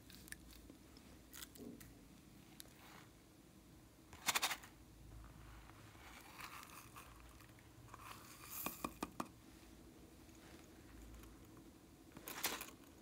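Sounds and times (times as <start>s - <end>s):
soft rustling and crunching: 5.2s - 8.6s, 9.4s - 13.0s.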